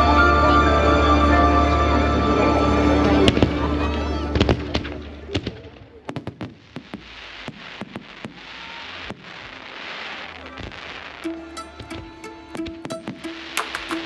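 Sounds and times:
music: 0.0s - 5.3s, 11.2s - 14.0s
fireworks bangs and cracks: 3.2s - 14.0s.

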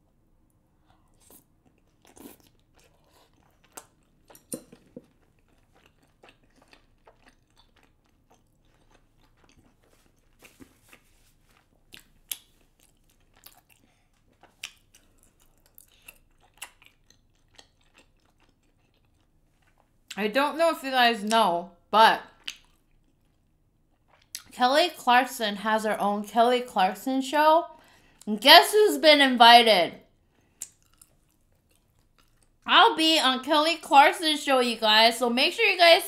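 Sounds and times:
person chewing: 0.8s - 20.2s, 22.4s - 24.5s, 30.3s - 32.6s.

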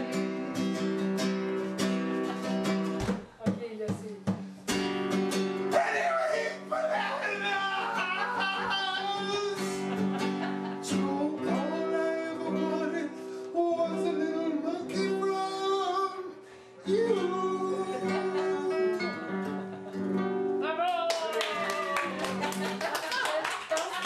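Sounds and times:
acoustic guitar: 0.0s - 23.3s
man singing: 5.8s - 10.0s, 10.8s - 19.4s.

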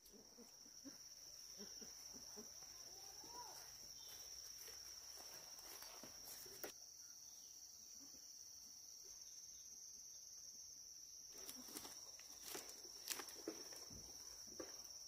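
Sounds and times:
footsteps on grass and leaves: 2.7s - 6.7s, 11.3s - 14.9s.

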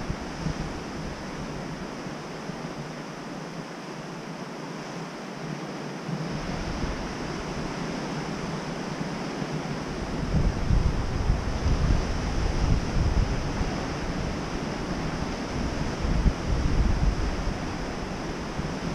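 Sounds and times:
wind on microphone: 0.0s - 3.7s, 5.3s - 18.9s.

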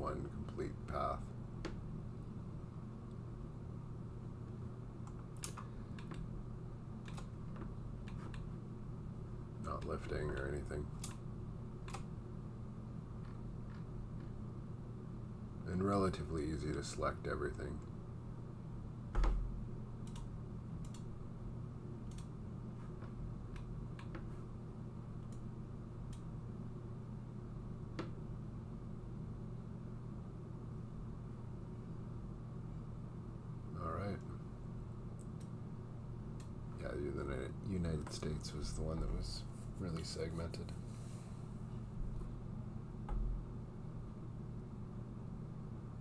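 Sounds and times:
steady low hum: 0.0s - 46.0s
computer keyboard and mouse clicks: 5.0s - 6.3s, 7.0s - 8.5s, 9.8s - 11.2s, 11.8s - 12.1s, 20.0s - 21.1s, 22.1s - 22.3s.

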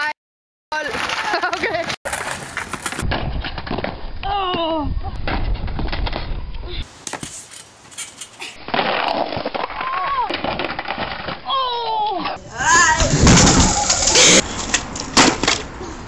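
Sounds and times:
skateboards clattering: 0.8s - 4.0s, 7.1s - 15.7s
wind rumble on microphone: 3.0s - 6.8s
person shouting: 11.5s - 13.2s.

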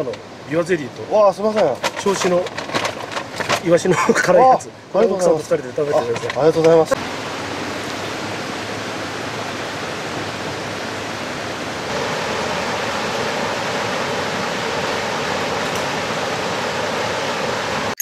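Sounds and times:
river rushing over boulders: 0.0s - 18.0s.

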